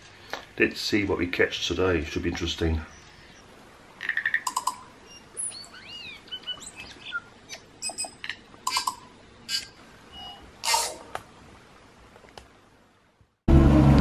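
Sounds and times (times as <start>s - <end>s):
whistling chirps and glides: 4.5s - 11.0s.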